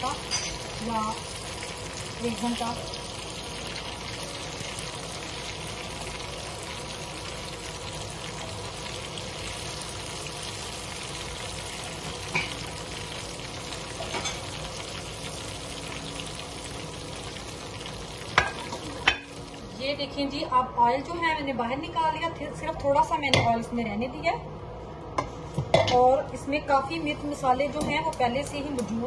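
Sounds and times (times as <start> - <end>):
fish sizzling in hot oil: 0.0 - 19.8.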